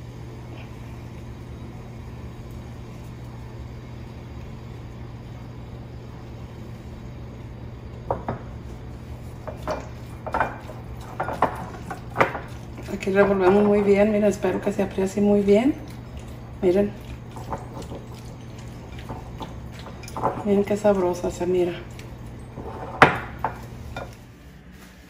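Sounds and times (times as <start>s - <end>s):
spatula stirring in a bowl: 8.7s - 24.3s
spatula knocking pot and bowl: 9.5s - 13.9s.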